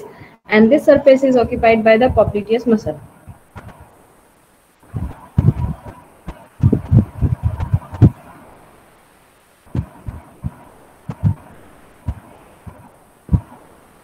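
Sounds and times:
faint steady hum: 0.0s - 14.0s
dull low thumps: 1.4s - 4.0s, 4.9s - 8.2s, 9.7s - 13.6s.

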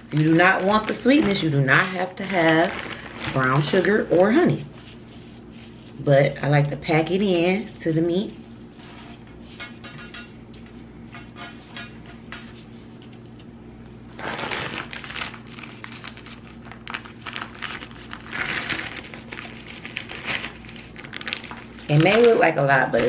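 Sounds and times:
steady low hum: 0.0s - 23.0s
hands rubbing sugar onto meat: 4.7s - 6.1s.

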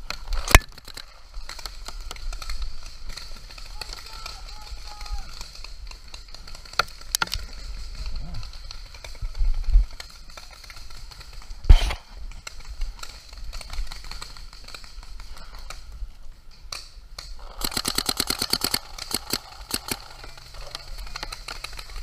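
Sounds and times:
paintball marker shots: 11.6s - 12.0s.

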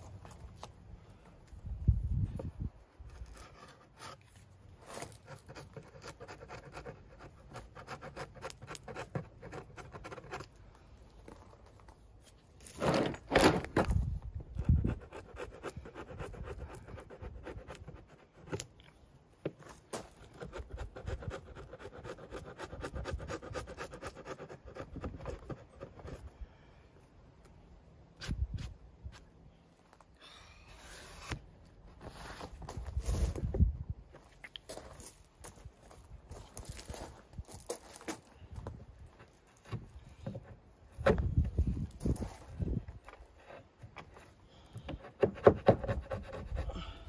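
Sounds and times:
chisel scraping wood: 3.1s - 10.6s, 43.1s - 46.7s.

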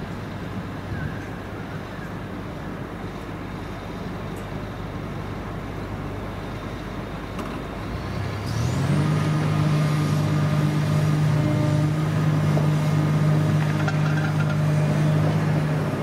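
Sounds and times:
excavator diesel engine running: 2.3s - 16.0s
rising engine whine: 5.3s - 16.0s.

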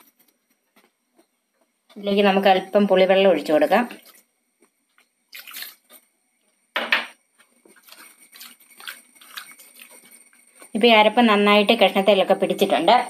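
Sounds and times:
hand squishing wet fish: 3.9s - 6.1s, 7.4s - 10.4s
water splashing onto fish: 5.3s - 5.9s.

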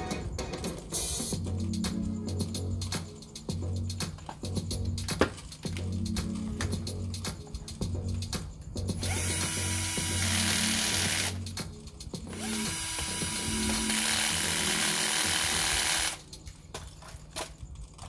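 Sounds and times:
cordless drill running: 9.0s - 11.4s, 12.3s - 16.2s.

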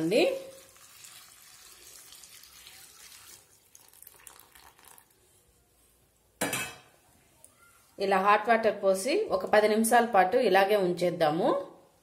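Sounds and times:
water pouring into steel bowl: 0.0s - 5.2s
water dripping: 0.4s - 5.2s.

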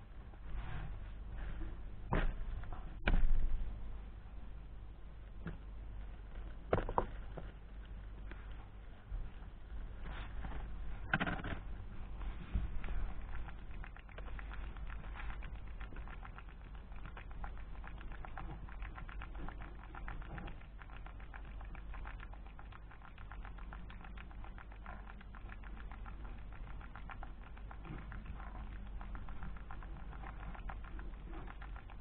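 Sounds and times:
hedgehog chewing clicks: 12.6s - 32.0s.

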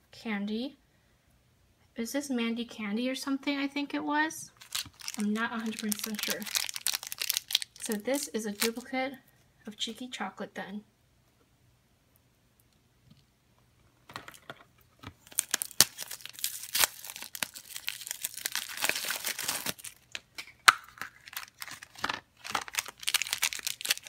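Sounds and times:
plastic packaging crinkling and tearing: 4.5s - 8.9s, 15.2s - 24.0s.

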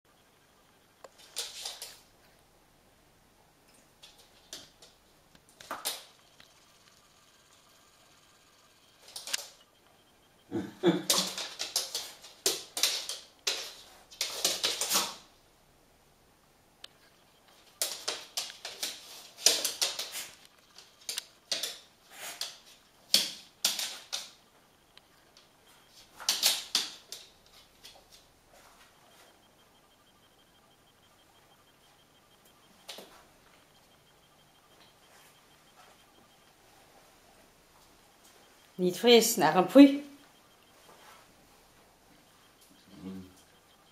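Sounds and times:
dog claws clicking on floor: 1.1s - 2.0s, 9.0s - 9.6s, 11.1s - 15.2s, 17.5s - 24.4s, 25.4s - 28.2s
dog sniffing and snuffling: 22.0s - 22.7s.

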